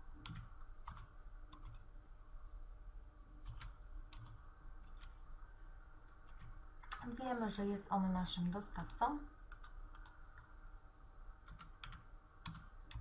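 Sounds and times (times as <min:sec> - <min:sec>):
steady low hum: 0:00.0 - 0:13.0
keyboard typing: 0:00.2 - 0:01.9, 0:03.4 - 0:05.2, 0:06.2 - 0:07.0, 0:08.8 - 0:10.5, 0:11.4 - 0:13.0.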